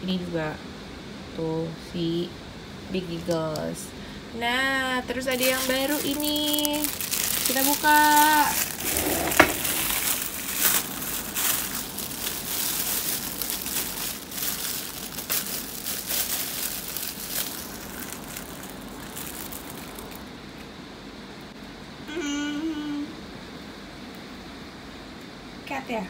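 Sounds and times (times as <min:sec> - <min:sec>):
plastic wrapping crinkling: 0:05.2 - 0:20.3.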